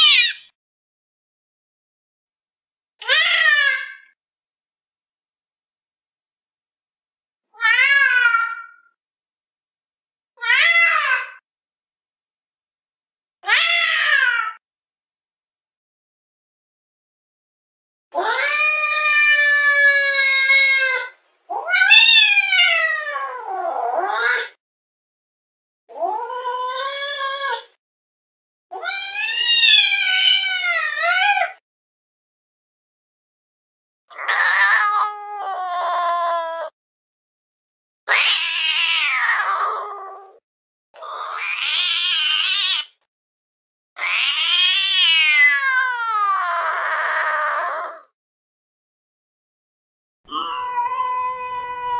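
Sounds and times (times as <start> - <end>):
cat yowling: 0.0 - 0.5, 3.0 - 4.1, 7.6 - 9.0, 10.4 - 11.4, 13.4 - 14.6, 18.2 - 24.6, 25.9 - 27.8, 28.7 - 31.6, 34.2 - 36.8, 38.1 - 40.4, 41.0 - 43.0, 44.0 - 48.1, 50.3 - 51.9.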